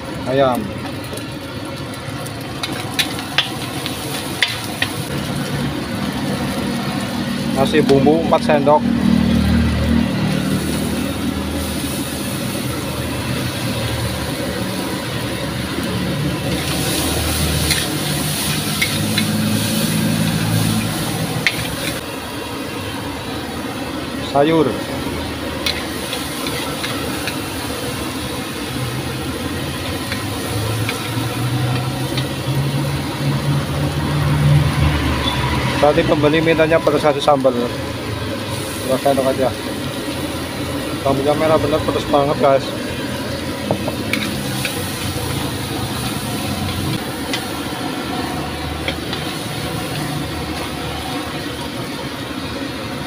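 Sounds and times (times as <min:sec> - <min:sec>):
burner: 0:00.0 - 0:53.0
frying hiss: 0:00.0 - 0:53.0
metal spatula scraping wok: 0:02.6 - 0:05.1, 0:16.3 - 0:22.0, 0:25.5 - 0:33.1, 0:42.7 - 0:51.4.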